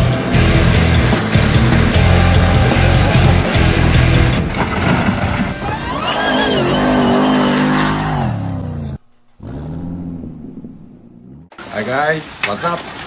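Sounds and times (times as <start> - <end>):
loud music: 0.0 - 4.4
vehicle engine revving: 5.6 - 11.6.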